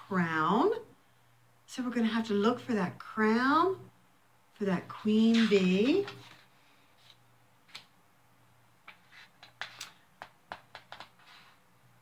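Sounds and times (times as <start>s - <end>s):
hands handling a book clicking: 7.1s - 7.9s, 8.8s - 11.2s.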